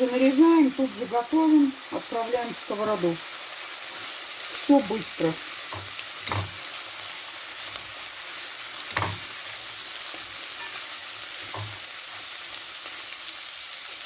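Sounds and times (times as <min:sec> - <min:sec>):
vegetables sizzling in frying pan: 0:00.0 - 0:14.0
utensil knocking against pan: 0:05.7 - 0:06.6, 0:08.9 - 0:09.2, 0:11.5 - 0:11.8.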